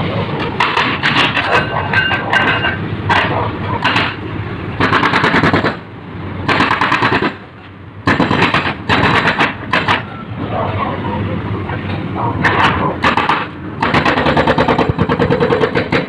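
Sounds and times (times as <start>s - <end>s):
low engine rumble: 0.0s - 16.0s
hydraulic breaker hammering pavement: 0.5s - 4.2s, 4.8s - 10.1s, 12.4s - 16.0s.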